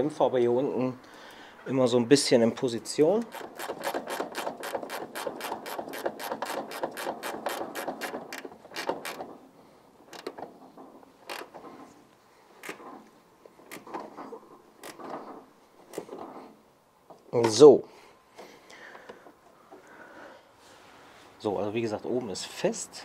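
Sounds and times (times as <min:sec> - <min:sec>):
metallic clicks and knocks: 0:03.2 - 0:09.4, 0:10.1 - 0:11.8
ratchet spanner clicking: 0:03.3 - 0:09.2.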